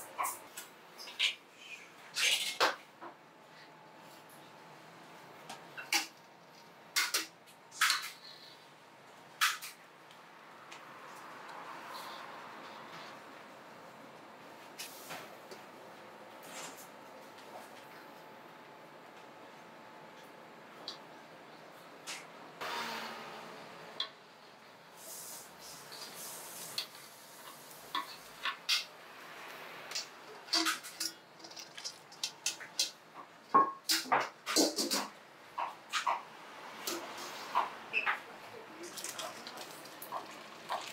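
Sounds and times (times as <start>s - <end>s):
liquid sloshing in a metal bowl: 30.4s - 33.0s, 38.8s - 40.9s
metal pots clanking: 30.4s - 33.0s.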